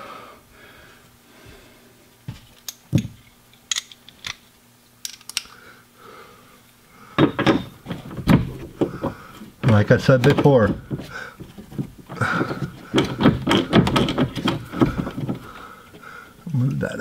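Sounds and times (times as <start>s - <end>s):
metal hardware clicking: 3.6s - 4.4s, 5.0s - 5.5s.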